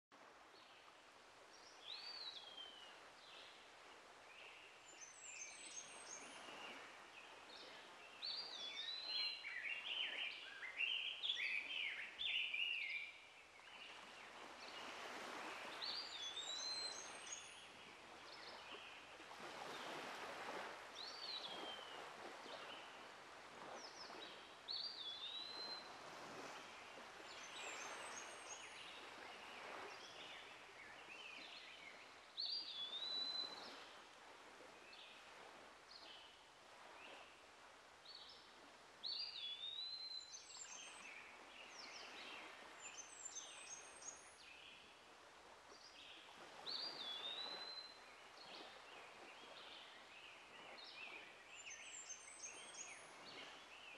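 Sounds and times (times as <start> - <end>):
songbirds singing: 4.4 - 14.9, 23.8 - 33.8, 38.1 - 44.9, 45.8 - 53.9.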